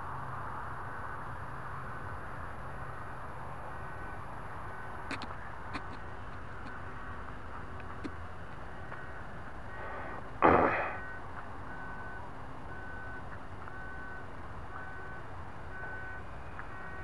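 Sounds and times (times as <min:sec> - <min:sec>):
short loud burst of noise: 0:09.9 - 0:11.0.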